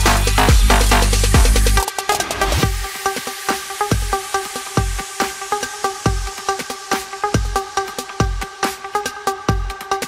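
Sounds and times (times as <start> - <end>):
deep kick drum: 0.0 - 1.8.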